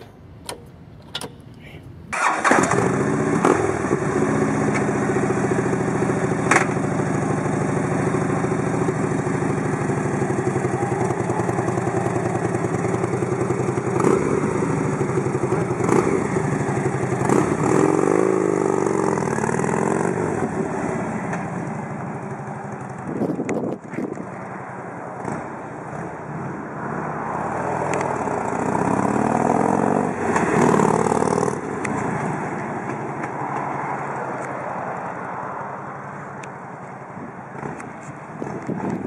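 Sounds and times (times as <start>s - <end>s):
sharp clicks: 0.0s - 1.6s
motorcycle pulling away: 2.2s - 33.1s
motorcycle engine idling: 3.2s - 23.7s.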